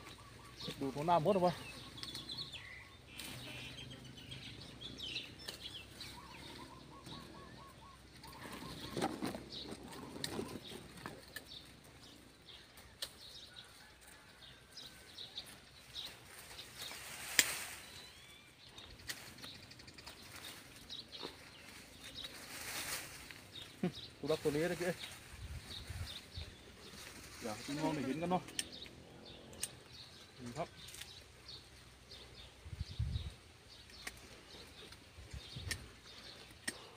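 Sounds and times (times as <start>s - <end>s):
birds calling and chirping: 0.0s - 36.9s
sharp clicks: 28.4s - 30.0s.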